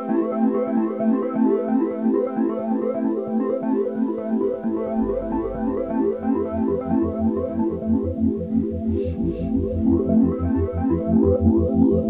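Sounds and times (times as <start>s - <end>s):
pulsing bass: 4.5s - 12.0s.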